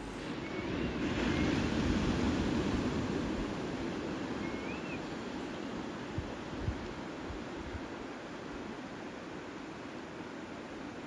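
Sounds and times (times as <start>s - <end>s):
rushing background noise: 0.0s - 2.6s
bird whistled call: 4.4s - 5.1s.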